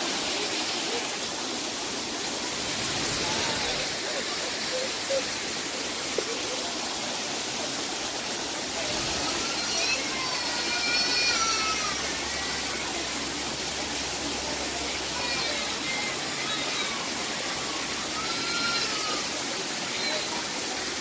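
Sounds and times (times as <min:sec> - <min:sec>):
faint voices: 0:00.0 - 0:21.0
waterfall rushing into pool: 0:00.0 - 0:21.0.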